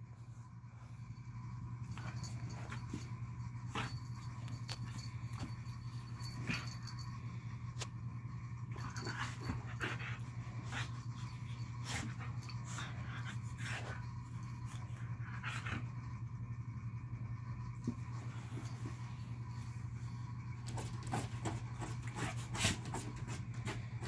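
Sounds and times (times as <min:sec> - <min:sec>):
dog panting and huffing: 0:08.8 - 0:16.0, 0:20.7 - 0:24.0.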